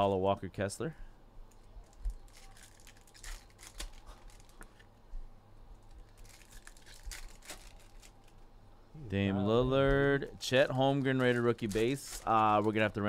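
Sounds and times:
foil wrapper crinkling: 1.5 - 4.9, 5.8 - 8.5, 10.5 - 13.0
cards being handled: 10.9 - 13.0.

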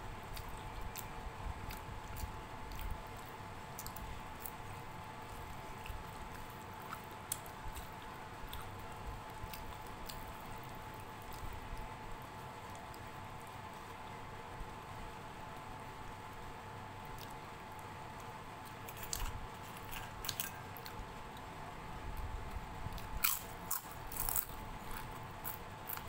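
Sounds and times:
fingers squishing soft food: 0.0 - 14.8, 17.0 - 26.0
chewing: 0.3 - 14.0, 18.2 - 21.5, 23.0 - 26.0.

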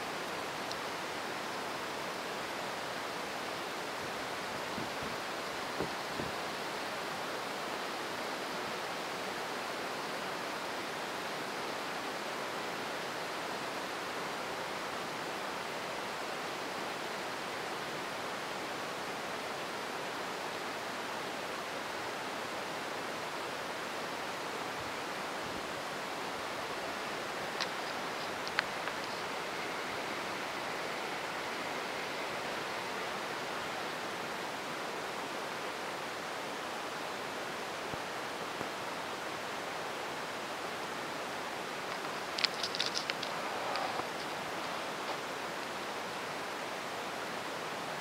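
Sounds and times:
heavy rain pouring: 21.8 - 48.0
faint clicks: 27.5 - 29.8, 41.9 - 45.2.

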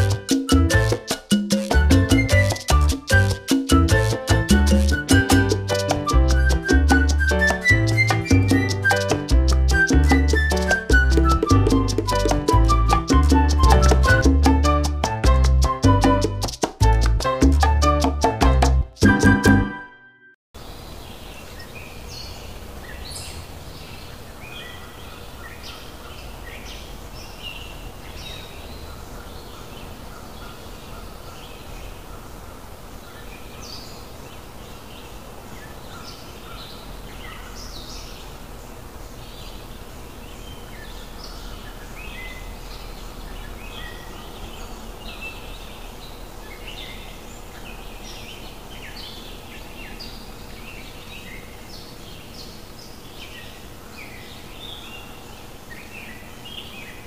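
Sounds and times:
low background noise: 20.6 - 57.0.

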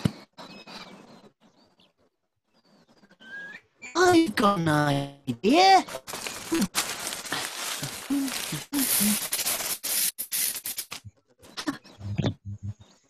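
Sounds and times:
cartoon scraping and rustling: 5.8 - 11.6.

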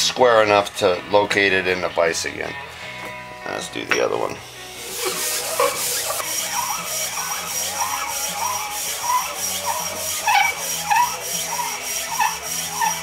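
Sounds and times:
metal block scraping on abrasive paper: 4.8 - 13.0.

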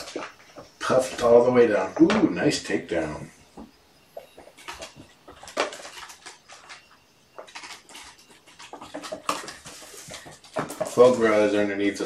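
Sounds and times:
patter of paws: 3.0 - 12.0
kittens play-fighting: 3.4 - 11.0
small objects rattling: 4.3 - 11.6.

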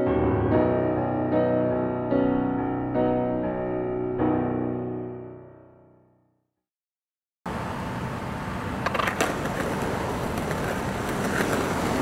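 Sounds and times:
skateboard wheels rumbling on concrete: 8.0 - 12.0
skateboard wheels clicking over joints: 8.8 - 12.0.

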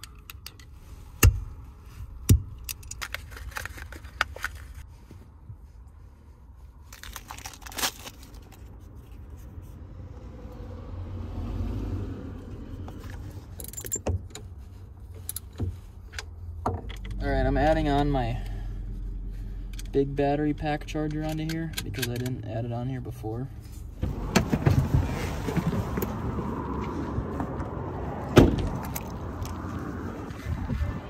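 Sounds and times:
clinks and scrapes of tools: 12.9 - 17.2.

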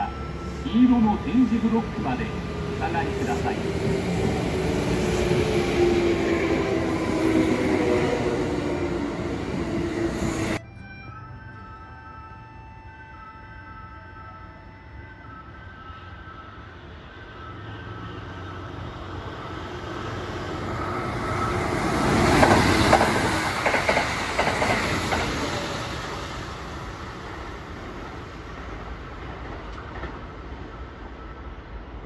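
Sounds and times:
train passing at speed: 0.0 - 10.7, 14.4 - 32.0
train wheel clatter: 22.0 - 26.0, 28.0 - 30.3.

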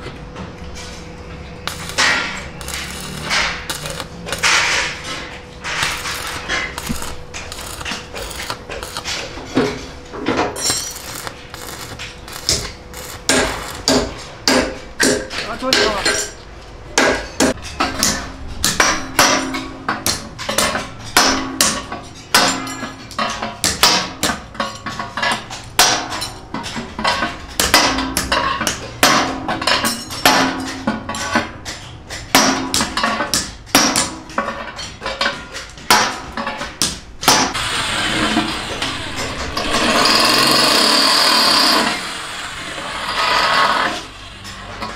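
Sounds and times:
power tool running: 1.7 - 4.8, 5.8 - 9.2, 10.6 - 14.1
hammer striking metal: 1.7 - 16.4, 17.0 - 24.8, 27.6 - 34.4.

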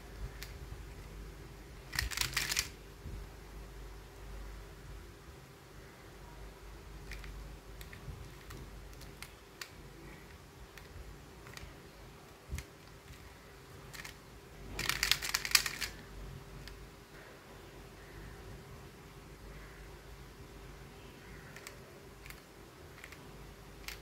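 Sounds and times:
plastic puzzle clicks: 1.9 - 2.8, 7.0 - 11.7, 13.9 - 14.2, 14.8 - 16.0, 21.5 - 23.2.

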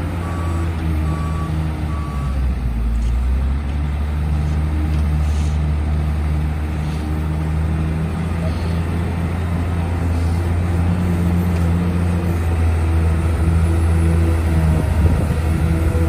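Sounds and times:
diesel engine running: 0.0 - 16.0
reversing alarm beeping: 0.2 - 2.4.

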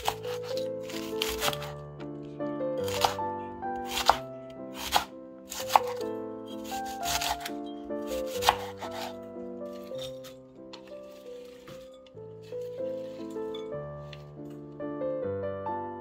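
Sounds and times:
knife cutting cabbage on board: 0.0 - 1.8, 2.8 - 13.4
background music: 0.0 - 16.0.

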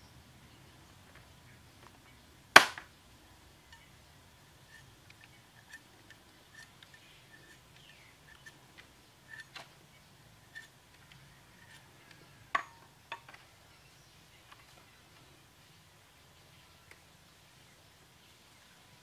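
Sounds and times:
bamboo skewers clicking: 2.6 - 2.9, 4.6 - 9.8, 10.4 - 13.5.

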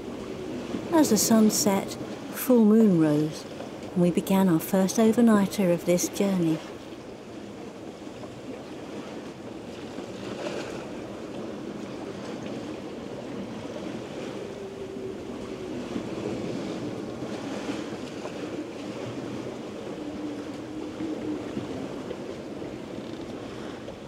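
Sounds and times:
water splashing along hull: 0.0 - 24.0
wind over deck: 0.0 - 24.0
wind buffeting microphone: 6.6 - 24.0.

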